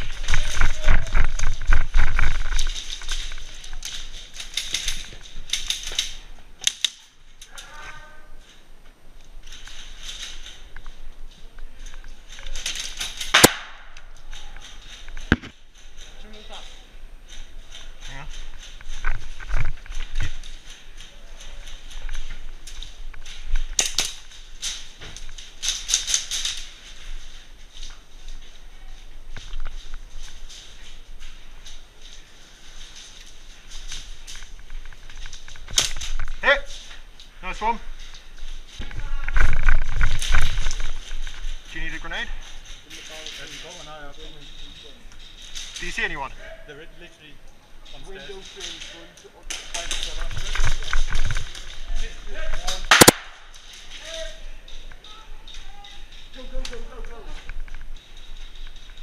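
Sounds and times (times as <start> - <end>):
airsoft guns firing: 13.2 - 14.0, 52.7 - 53.6.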